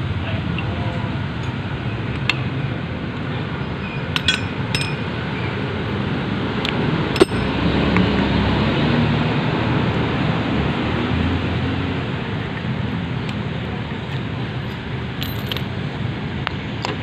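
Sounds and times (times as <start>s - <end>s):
metallic clinks of hand tools: 4.2s - 5.1s, 7.2s - 7.6s.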